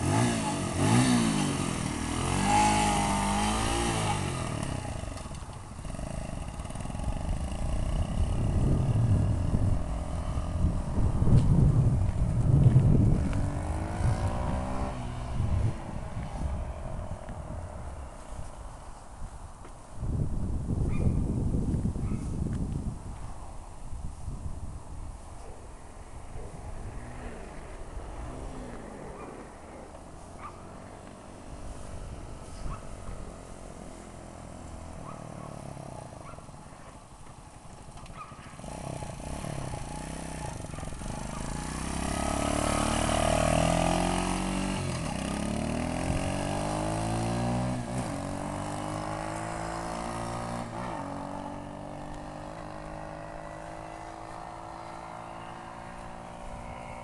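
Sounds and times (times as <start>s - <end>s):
pocket bike engine passing: 0.0s - 18.5s, 26.0s - 57.0s.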